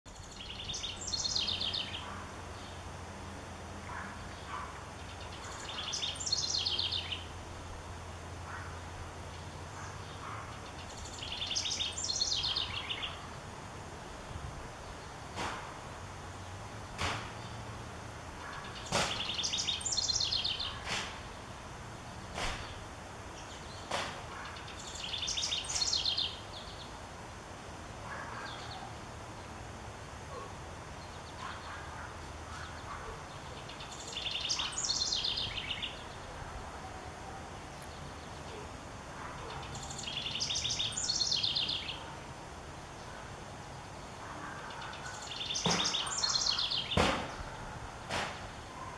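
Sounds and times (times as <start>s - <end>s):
wren singing: 0.1s - 2.8s, 5.0s - 7.4s, 10.5s - 13.4s, 18.5s - 20.9s, 24.5s - 26.9s, 32.5s - 36.3s, 39.4s - 42.1s, 43.8s - 47.0s.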